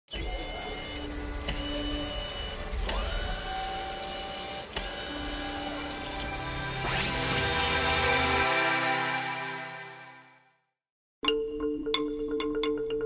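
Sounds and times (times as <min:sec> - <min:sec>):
small electric motors whirring: 0:00.1 - 0:08.5.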